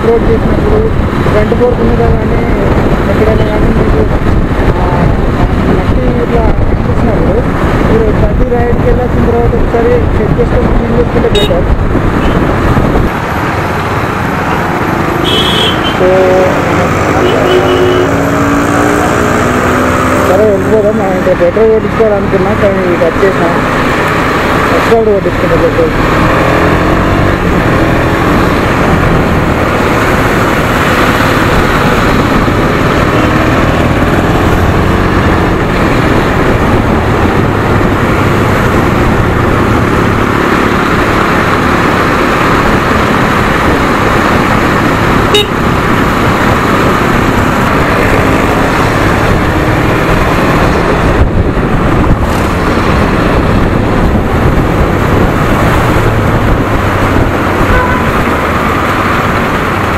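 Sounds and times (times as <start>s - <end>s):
traffic: 0.0s - 59.9s
wind and road rush: 0.0s - 59.9s
motorcycle engine running: 26.7s - 59.9s.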